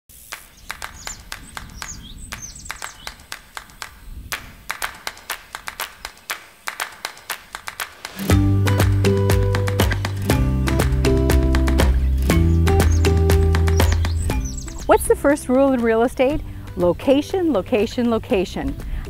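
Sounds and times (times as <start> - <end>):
sharp handclaps: 0.2 - 14.6
music with heavy bass: 8.2 - 16.0.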